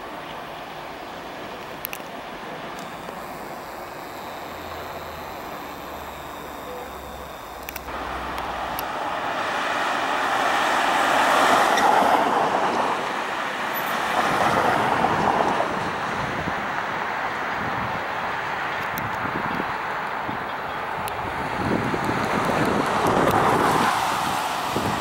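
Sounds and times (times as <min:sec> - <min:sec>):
vehicle passing by: 0:07.9 - 0:15.6.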